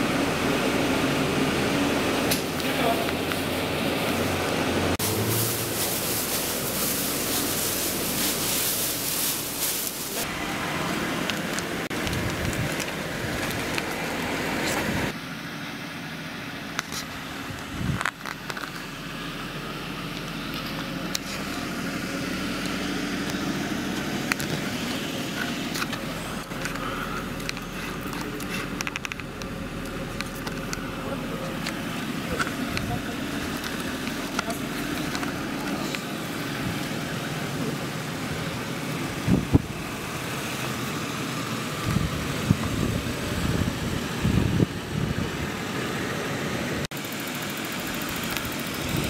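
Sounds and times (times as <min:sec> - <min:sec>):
car engine idling: 0:00.0 - 0:49.0
loud hiss: 0:05.0 - 0:10.3.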